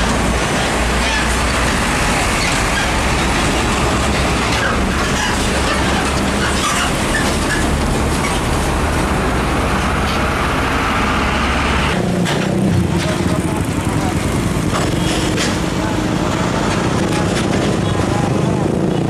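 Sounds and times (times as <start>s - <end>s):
diesel engine humming: 0.0s - 19.0s
tyre and road noise: 0.0s - 19.0s.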